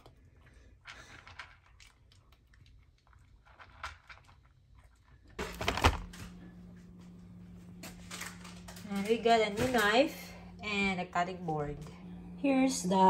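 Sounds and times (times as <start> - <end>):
cat crunching dry food: 0.0 - 11.1
handling noise: 5.4 - 12.6
steady low hum: 5.4 - 13.0.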